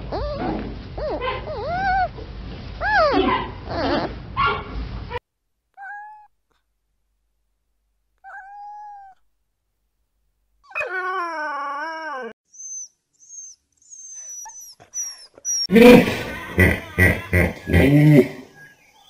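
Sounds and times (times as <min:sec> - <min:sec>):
cat meowing: 0:05.8 - 0:06.3.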